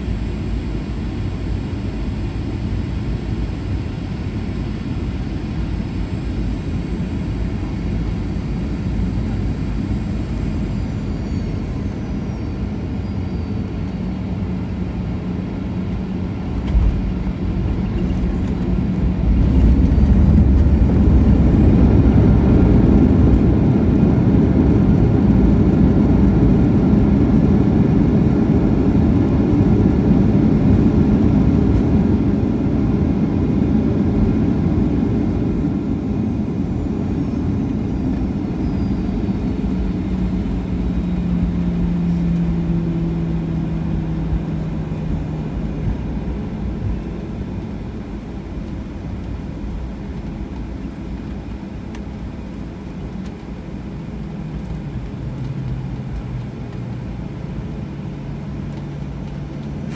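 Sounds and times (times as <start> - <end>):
steady jet engine hum: 0.0 - 59.9
airliner touchdown thump: 16.6 - 21.4.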